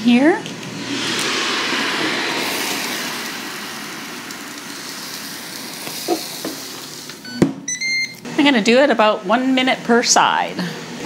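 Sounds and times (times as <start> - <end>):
meat sizzling on grill plate: 2.4 - 7.2.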